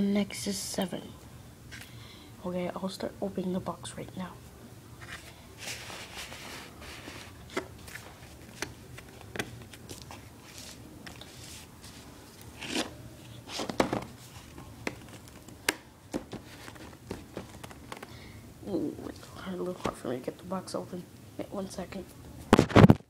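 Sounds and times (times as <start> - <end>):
rustling scrapes: 5.0 - 9.0, 9.8 - 15.3, 16.3 - 17.6.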